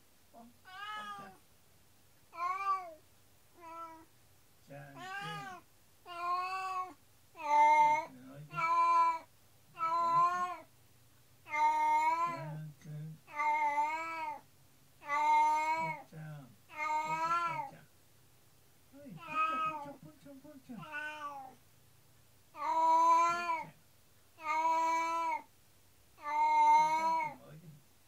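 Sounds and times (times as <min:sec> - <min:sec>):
cat meowing: 0:00.6 - 0:01.4, 0:02.3 - 0:03.0, 0:03.6 - 0:04.1, 0:05.0 - 0:10.7, 0:11.5 - 0:12.5, 0:13.3 - 0:14.4, 0:15.0 - 0:16.0, 0:16.7 - 0:17.7, 0:19.2 - 0:20.0, 0:20.8 - 0:21.6, 0:22.6 - 0:23.7, 0:24.4 - 0:25.5, 0:26.2 - 0:27.4.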